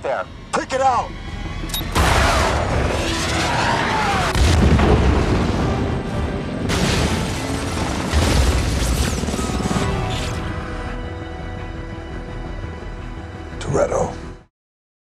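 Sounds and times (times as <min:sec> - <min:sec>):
dramatic score music: 0:00.0 - 0:14.5
missile whine: 0:01.2 - 0:10.8
deep explosion booms: 0:04.2 - 0:09.0.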